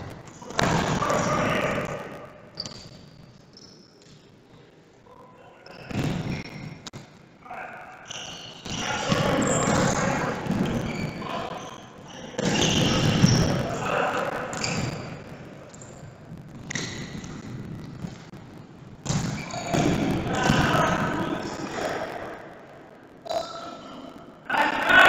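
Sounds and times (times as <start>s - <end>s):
players' voices echoing: 0.0s - 2.7s, 4.1s - 25.0s.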